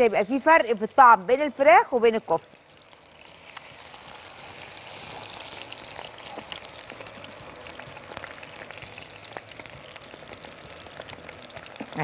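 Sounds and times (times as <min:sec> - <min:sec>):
oil sizzling and popping in a pan: 0:00.0 - 0:12.0.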